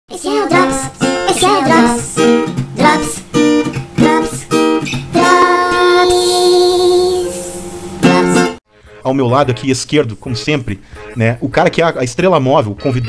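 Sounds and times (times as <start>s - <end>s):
person singing: 0.1s - 3.2s, 4.0s - 8.6s
strummed acoustic guitar: 0.2s - 11.3s.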